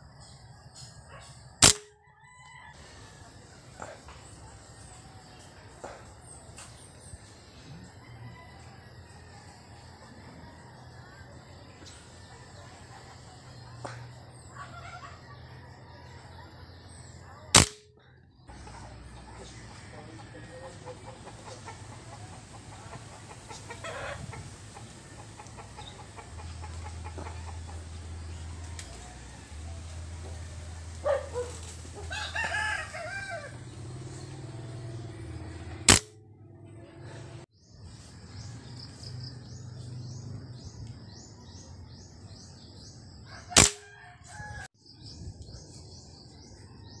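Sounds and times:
air rifle shot: 1.6s - 2.0s, 17.6s - 17.9s, 35.9s - 36.1s, 43.6s - 43.8s
rooster crowing: 2.0s - 3.5s, 7.7s - 11.2s, 25.8s - 35.2s, 43.2s - 44.7s.

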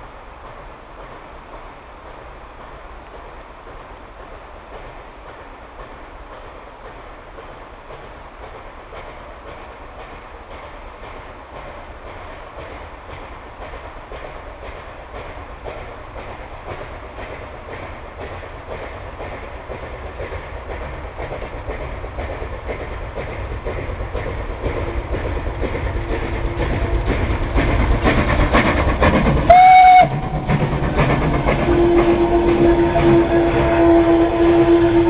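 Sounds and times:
steam locomotive chuffing: 0.0s - 35.0s
steam whistle blast: 29.5s - 30.4s, 31.6s - 35.0s.

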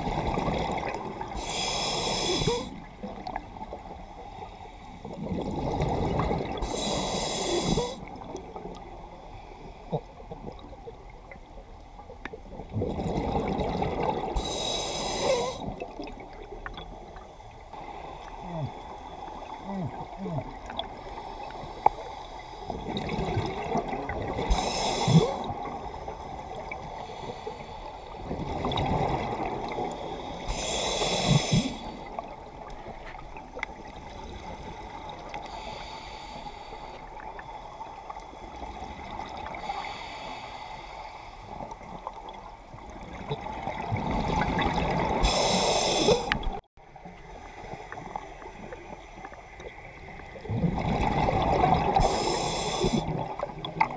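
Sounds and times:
diver inhaling through regulator: 1.4s - 2.8s, 6.6s - 8.1s, 14.4s - 15.7s, 24.4s - 25.5s, 30.5s - 32.2s, 39.6s - 41.4s, 45.2s - 46.5s, 51.9s - 53.2s
bubbling exhales underwater: 50.4s - 53.9s.

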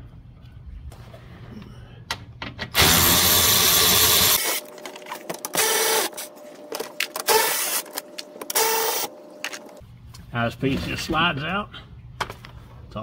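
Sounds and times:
cordless power tool whine: 2.8s - 4.7s, 5.5s - 6.2s, 8.5s - 9.1s.

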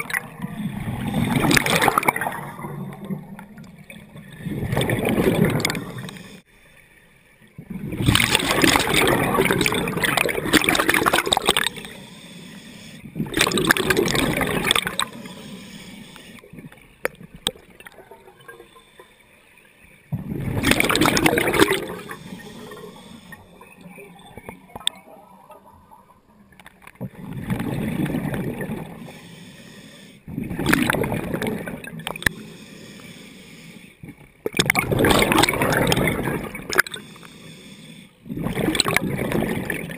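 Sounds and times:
exhaled bubbles gurgling underwater: 0.0s - 6.4s, 7.5s - 39.9s
diver inhaling through regulator: 11.7s - 13.2s, 14.4s - 16.4s, 21.4s - 23.6s, 28.9s - 30.3s, 32.2s - 34.0s, 36.7s - 38.4s.

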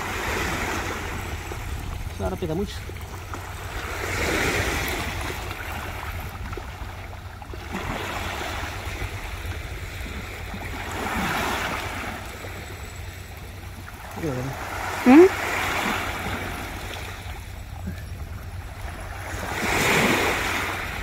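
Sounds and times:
wind rumble on microphone: 0.0s - 21.0s
surf breaking on beach: 18.7s - 21.0s.

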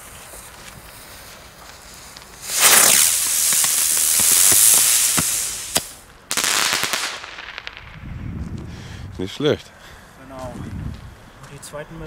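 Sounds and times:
firework hissing: 0.0s - 8.1s
burst of sharp crackles: 0.4s - 8.2s
firework pops: 1.7s - 8.1s.

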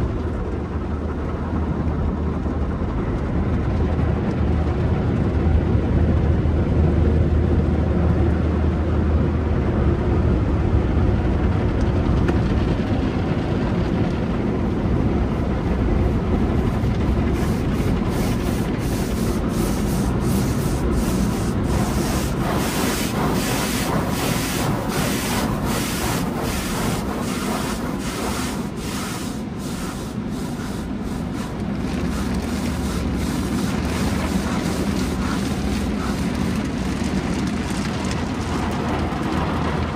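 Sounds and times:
wash brushes swishing: 16.6s - 36.6s
water spray rushing: 17.3s - 36.7s.

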